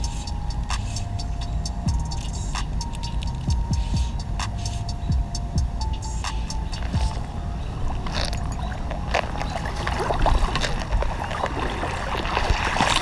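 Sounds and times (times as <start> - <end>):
water splashing from wading: 6.9 - 13.0.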